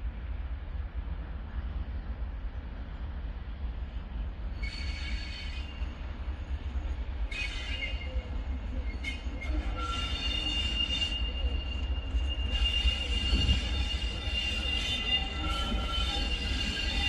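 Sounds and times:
low train rumble: 0:00.0 - 0:17.0
train wheels squealing on rails: 0:04.4 - 0:17.0.

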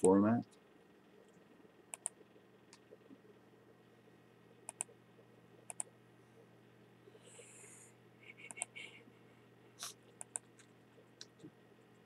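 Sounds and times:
low steady hum: 0:00.0 - 0:12.0
computer mouse clicking: 0:01.9 - 0:03.0, 0:04.6 - 0:04.9, 0:05.7 - 0:05.9, 0:08.5 - 0:08.8, 0:10.1 - 0:11.5.

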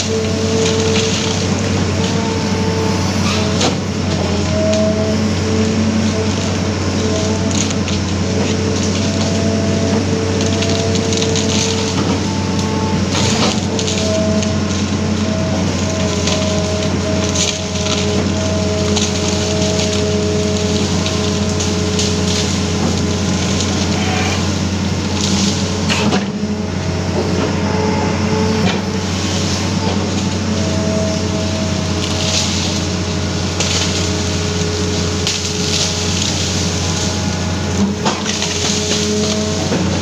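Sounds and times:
excavator engine running: 0:00.0 - 0:40.0
wood cracking: 0:03.4 - 0:26.4, 0:31.2 - 0:40.0.

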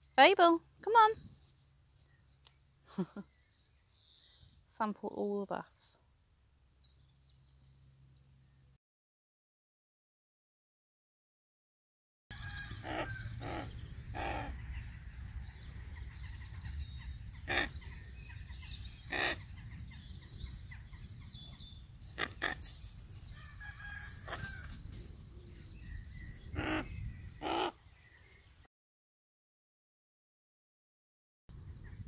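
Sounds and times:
raven calling: 0:12.4 - 0:15.1, 0:17.3 - 0:19.7, 0:22.1 - 0:22.7, 0:26.4 - 0:27.8.

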